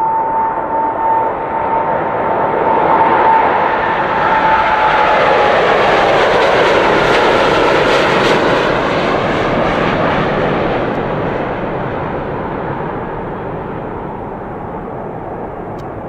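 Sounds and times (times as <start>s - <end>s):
jet engines roaring at takeoff: 0.0s - 16.0s.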